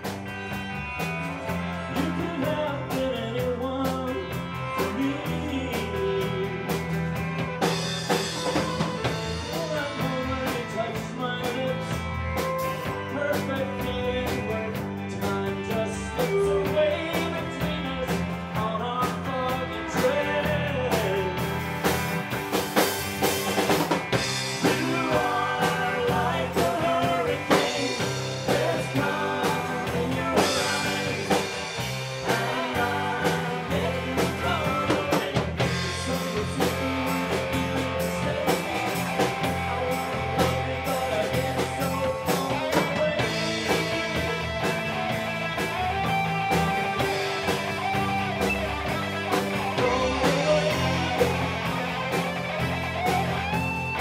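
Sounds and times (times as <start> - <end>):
electric bass: 0.0 - 54.0
electric guitars: 0.0 - 54.0
drum beat: 21.5 - 54.0.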